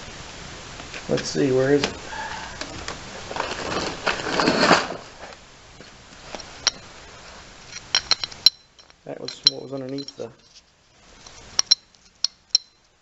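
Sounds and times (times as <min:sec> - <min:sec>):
rustling scrape of handled pulley: 0:02.3 - 0:05.3, 0:06.2 - 0:12.5.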